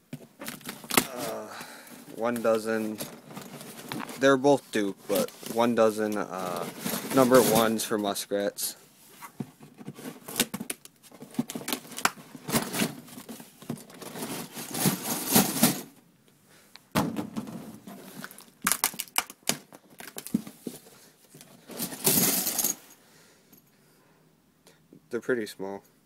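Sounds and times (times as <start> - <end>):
cardboard rustling and crinkling: 0.1 - 8.2, 9.1 - 15.8, 17.3 - 22.1.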